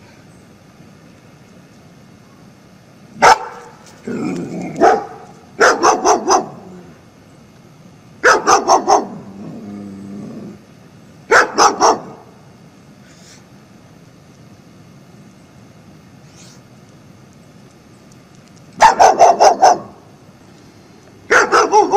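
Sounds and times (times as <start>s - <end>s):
dog barking: 3.2s - 3.8s, 4.8s - 6.7s, 8.2s - 9.3s, 11.3s - 12.3s, 18.8s - 20.0s, 21.3s - 21.9s
dog growling: 4.0s - 4.9s, 9.0s - 10.6s.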